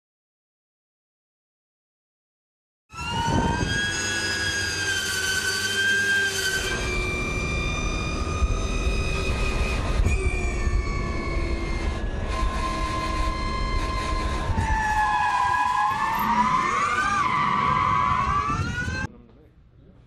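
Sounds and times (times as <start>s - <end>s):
electric motor whine: 2.9s - 19.1s
spinning tyres rumbling: 3.6s - 19.1s.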